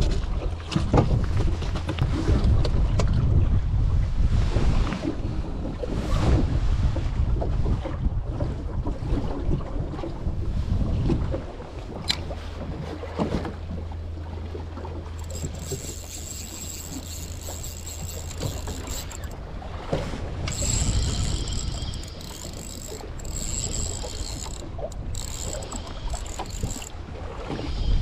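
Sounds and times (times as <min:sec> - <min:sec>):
fishing reel whirring: 0:14.9 - 0:19.5, 0:20.4 - 0:28.0.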